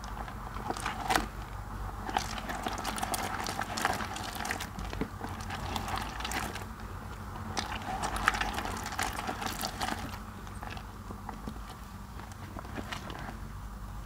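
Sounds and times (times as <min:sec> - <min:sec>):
hands squelching wet soap paste: 0:00.0 - 0:13.5.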